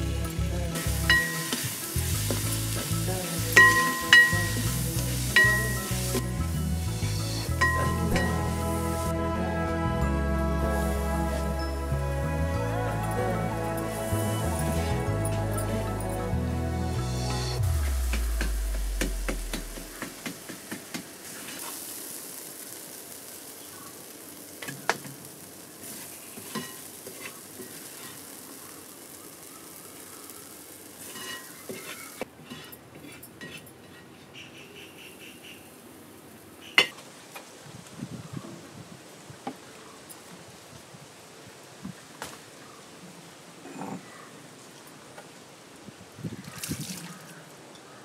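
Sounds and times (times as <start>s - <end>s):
food sizzling in a metal pan: 0.0s - 9.2s, 17.5s - 32.7s
background music: 0.0s - 20.0s
outdoor ambience: 0.0s - 48.0s
wooden spatula scraping pan: 31.1s - 34.1s.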